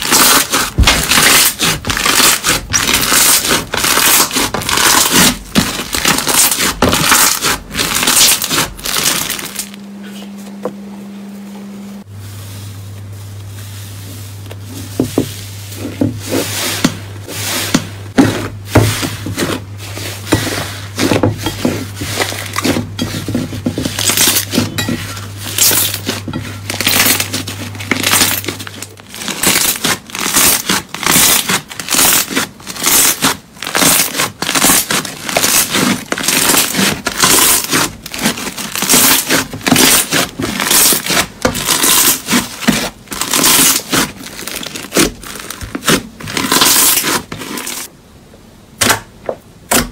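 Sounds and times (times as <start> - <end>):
steady low hum: 0.0 - 30.2.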